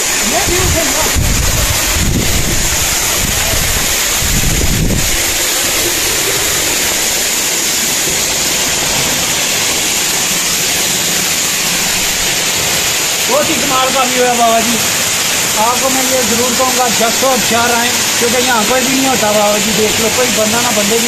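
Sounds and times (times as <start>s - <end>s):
waterfall rushing: 0.0s - 21.0s
wind rumble on microphone: 0.3s - 6.7s.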